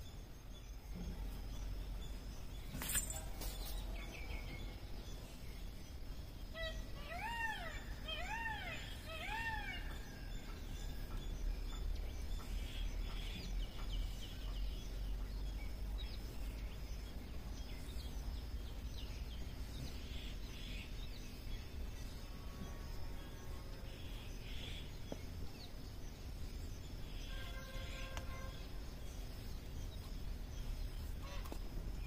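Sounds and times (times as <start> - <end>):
rising and falling bird call: 6.5 - 10.3.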